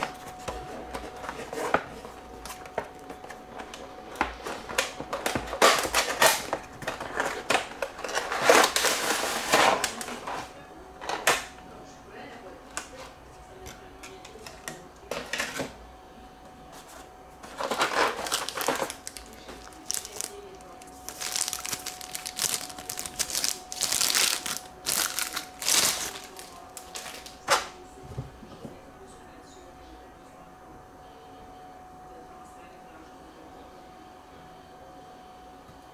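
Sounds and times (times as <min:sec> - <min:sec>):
plastic bag crinkling: 0:17.5 - 0:27.5.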